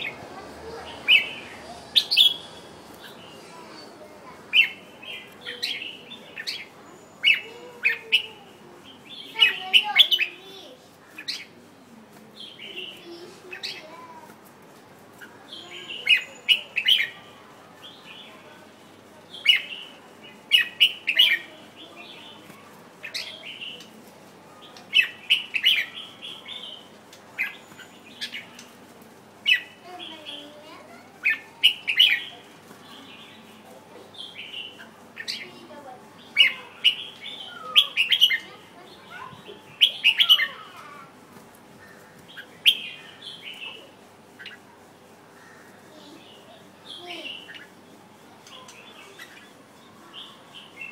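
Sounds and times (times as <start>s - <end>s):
bulbul singing chirpy phrases: 0.0s - 11.6s, 29.3s - 41.2s, 45.8s - 50.9s.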